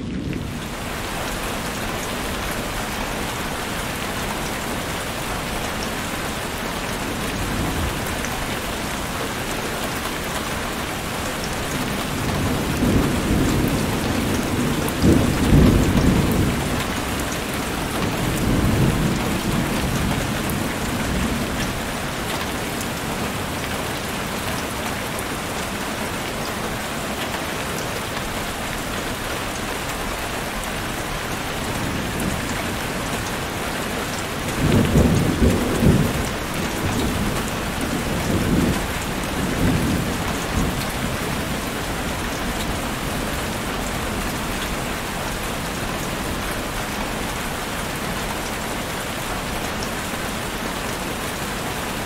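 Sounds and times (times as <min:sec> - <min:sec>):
steady rain: 0:00.0 - 0:52.0
thunder rumbling: 0:11.6 - 0:22.2, 0:31.6 - 0:45.9.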